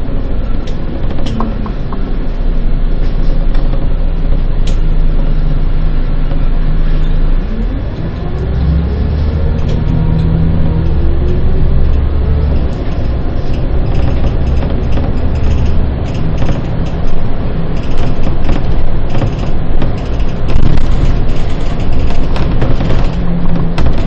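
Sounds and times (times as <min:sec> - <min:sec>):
bus engine drone: 0:00.0 - 0:24.0
road noise: 0:00.0 - 0:24.0
rattles and knocks: 0:00.5 - 0:02.0, 0:03.0 - 0:05.0, 0:09.5 - 0:24.0.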